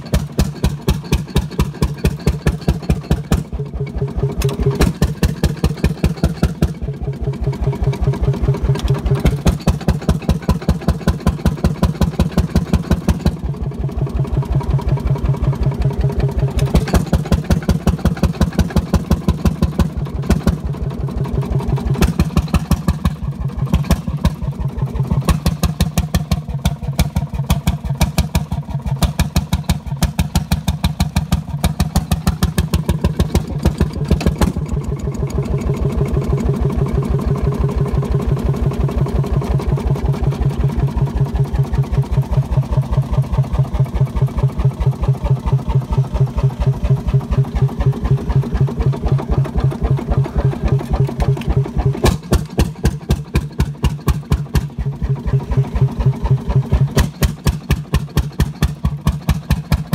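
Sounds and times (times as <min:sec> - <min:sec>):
sharp engine knocks: 0:00.0 - 0:03.6, 0:04.2 - 0:06.8, 0:08.6 - 0:13.5, 0:16.5 - 0:20.7, 0:21.9 - 0:24.4, 0:25.2 - 0:35.0, 0:47.5 - 0:55.0, 0:56.4 - 0:59.9
diesel engine running: 0:00.0 - 0:59.9.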